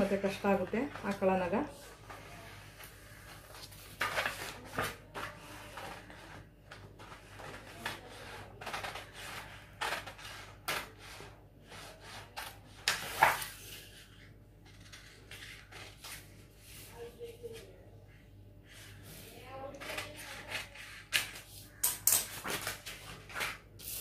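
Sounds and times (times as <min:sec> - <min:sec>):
paper sheet rustling: 0:00.5 - 0:10.9, 0:19.1 - 0:24.0.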